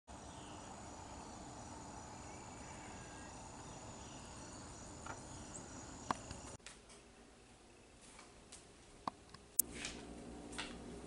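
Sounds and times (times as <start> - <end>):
insect chorus trilling: 0.2 - 6.6.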